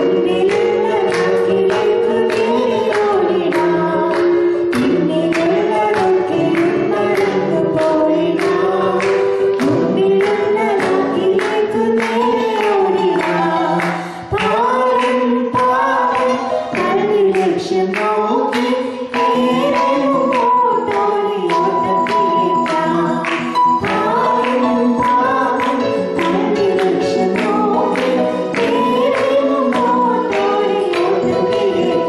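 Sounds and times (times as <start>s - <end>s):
woman and man singing: 0.0s - 32.0s.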